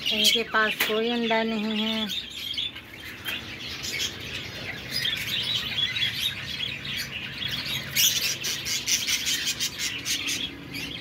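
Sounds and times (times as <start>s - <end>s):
budgerigars chirping: 0.0s - 11.0s.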